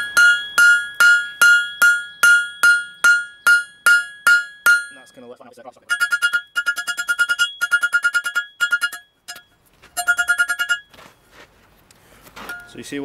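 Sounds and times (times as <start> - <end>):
hammer striking steel on anvil: 0.0 - 5.3, 5.9 - 10.9.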